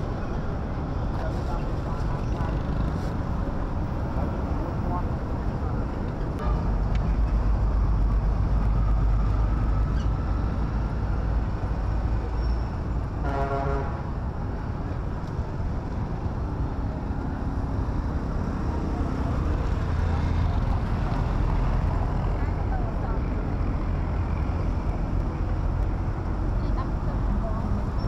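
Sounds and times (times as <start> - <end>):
traffic engines rumbling: 0.0 - 28.0
vehicle horn: 6.4 - 6.7, 13.2 - 14.1.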